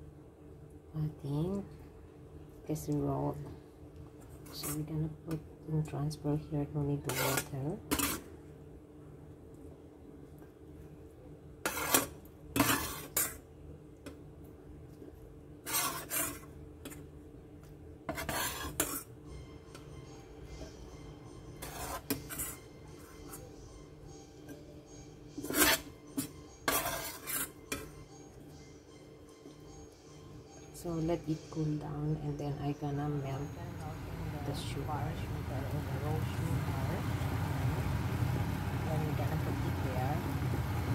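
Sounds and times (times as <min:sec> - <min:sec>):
metal spoon scraping steel bowl: 0:07.0 - 0:08.3, 0:11.6 - 0:13.4, 0:15.7 - 0:17.0, 0:18.1 - 0:19.1, 0:21.6 - 0:23.5, 0:25.4 - 0:27.9.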